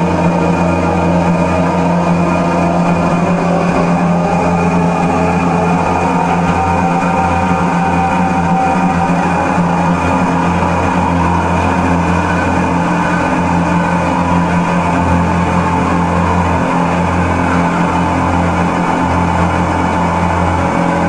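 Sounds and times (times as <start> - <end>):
electronic drone music: 0.0 - 21.0.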